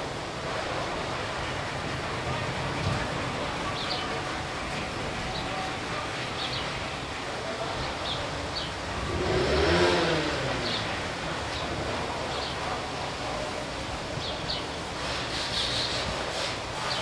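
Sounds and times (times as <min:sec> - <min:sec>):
city traffic noise: 0:00.0 - 0:17.0
sparrows chirping: 0:03.6 - 0:04.4, 0:05.3 - 0:06.8, 0:07.7 - 0:08.8, 0:09.4 - 0:13.1, 0:14.1 - 0:17.0
passing vehicle engine: 0:08.6 - 0:13.2.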